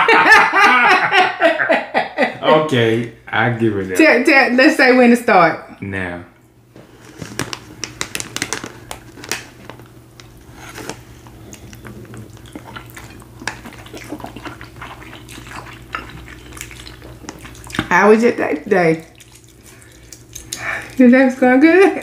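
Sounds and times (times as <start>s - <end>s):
people slurping and chewing noodles: 10.4s - 21.1s.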